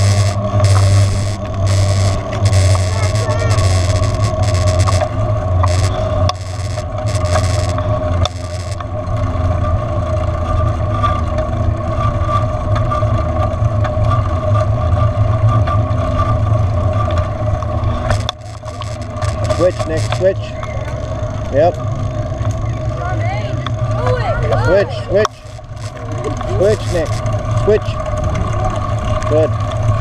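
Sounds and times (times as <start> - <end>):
steady whine: 0.0 - 9.2, 17.9 - 22.8, 24.6 - 28.2.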